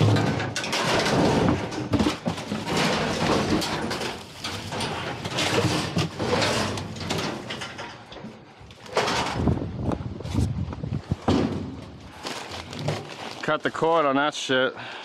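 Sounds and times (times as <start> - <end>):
paper and plastic rustling: 0.0 - 8.0, 11.8 - 14.0
metal wire racks clattering: 0.0 - 9.7.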